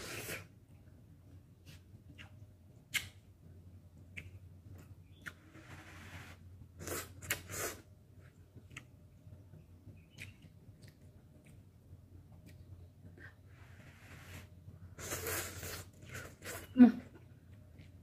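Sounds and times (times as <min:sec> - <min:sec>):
person slurping noodles: 0:13.9 - 0:16.6.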